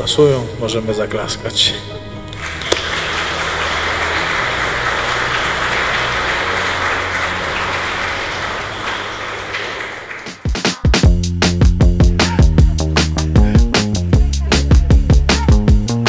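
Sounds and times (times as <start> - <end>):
guests applauding: 2.4 - 11.1.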